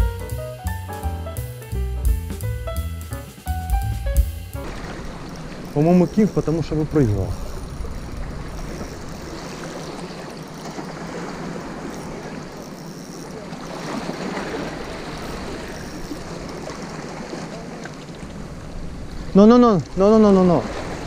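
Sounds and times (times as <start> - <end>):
waves washing against shore: 4.5 - 21.0.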